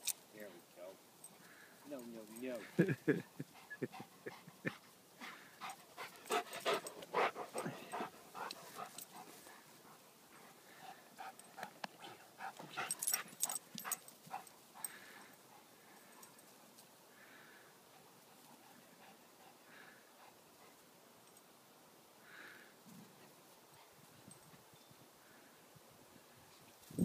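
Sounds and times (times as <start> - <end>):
dogs panting: 1.3 - 21.0.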